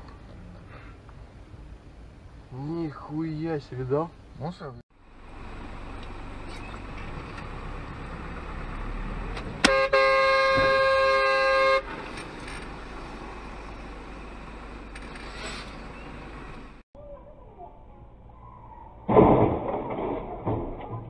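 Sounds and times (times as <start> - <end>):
vehicle road noise: 0.0 - 16.8
car horn: 9.6 - 12.0
car collision impact: 19.1 - 21.0.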